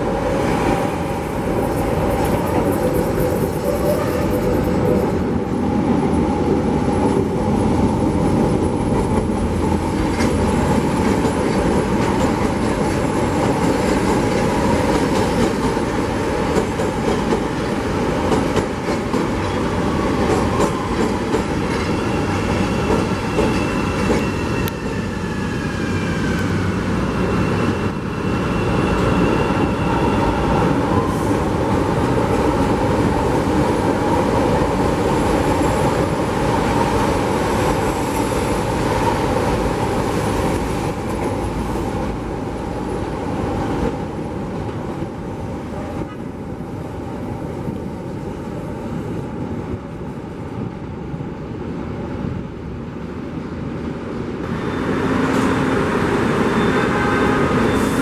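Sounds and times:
clickety-clack of rail joints: 0.0 - 5.3, 6.9 - 25.0, 30.4 - 50.7
train wheels rumbling on rails: 0.0 - 58.0
high-pitched wheel squeal: 56.3 - 58.0.

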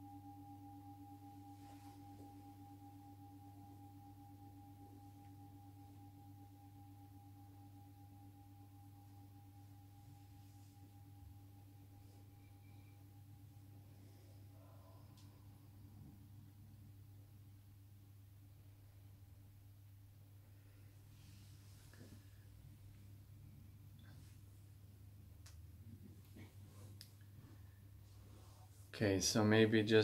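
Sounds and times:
singing bowl ringing: 0.0 - 16.0
low steady hum: 0.0 - 30.0.

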